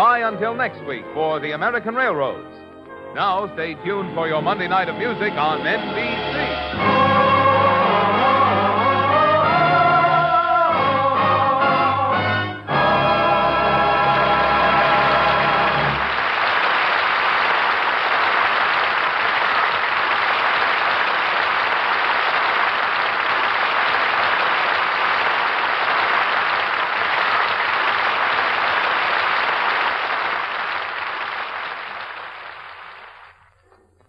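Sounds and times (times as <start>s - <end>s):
closing music: 0.0s - 16.3s
audience applauding: 14.5s - 33.6s.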